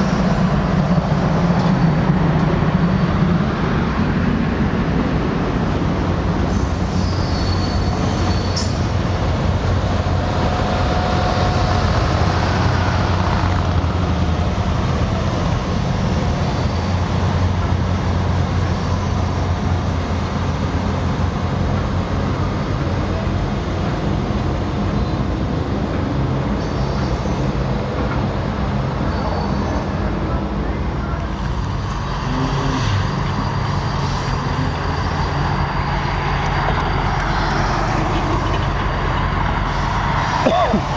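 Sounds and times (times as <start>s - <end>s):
train cars rumbling on track: 0.0s - 40.9s
train wheel squeals: 6.4s - 9.0s, 15.2s - 17.1s, 18.0s - 19.4s, 24.4s - 25.6s, 26.2s - 27.6s, 28.8s - 30.1s.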